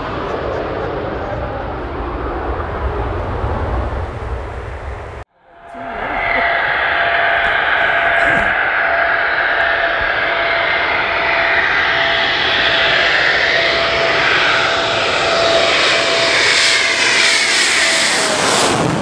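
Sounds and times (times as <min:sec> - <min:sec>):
constant engine whine: 0:00.0 - 0:19.0
jet engines running: 0:00.0 - 0:19.0.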